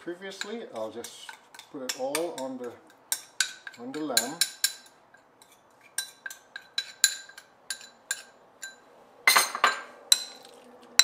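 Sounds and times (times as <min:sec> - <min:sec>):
spoon clinking ceramic bowls: 0:06.0 - 0:10.6.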